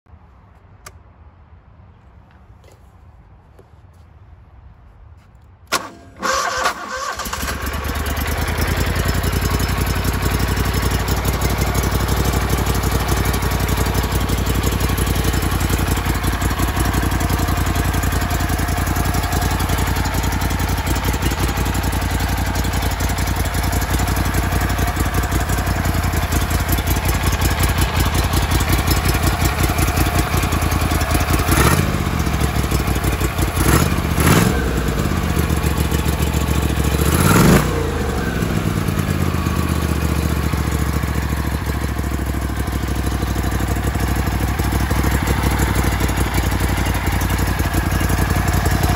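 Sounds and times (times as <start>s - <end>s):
boat motor starting and idling: 5.7s - 36.8s.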